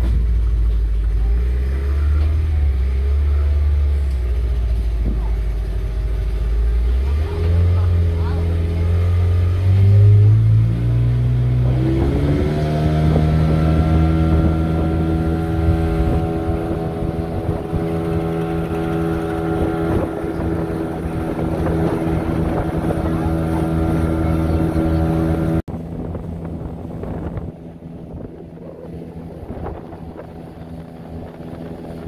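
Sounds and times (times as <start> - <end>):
motorboat engine: 0.0 - 32.0
wind noise: 11.0 - 32.0.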